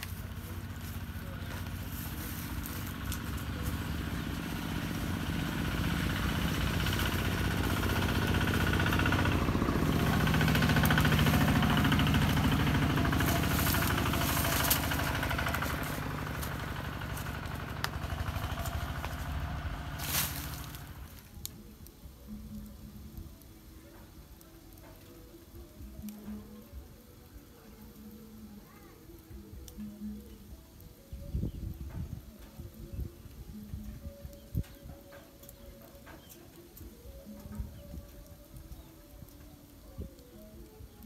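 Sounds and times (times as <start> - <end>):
engine running: 0.0 - 26.7.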